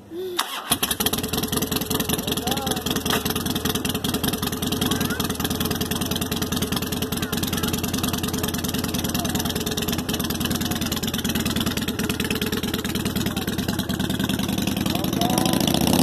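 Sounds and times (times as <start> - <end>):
motorcycle engine idling: 0.4 - 16.0.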